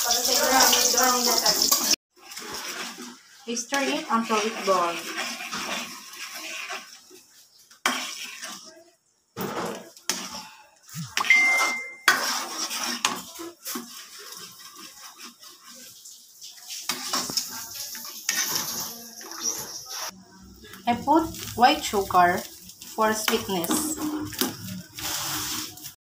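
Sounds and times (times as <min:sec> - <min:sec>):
spoon scraping a wok: 0:00.1 - 0:08.9, 0:09.5 - 0:26.0
short steady beep: 0:11.0 - 0:12.1.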